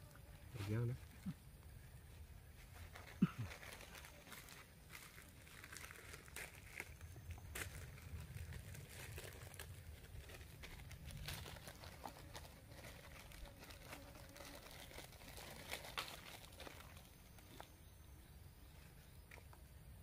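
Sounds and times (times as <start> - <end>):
plastic bag crinkling: 2.8 - 17.6.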